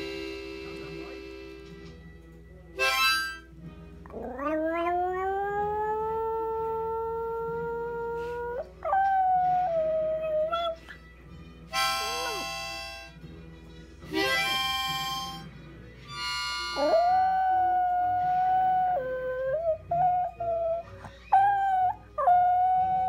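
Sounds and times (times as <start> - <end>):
harmonica chord: 0.0 - 1.9, 2.8 - 3.5, 11.7 - 13.2, 14.1 - 17.2
dog howling: 4.1 - 10.8, 16.8 - 23.0.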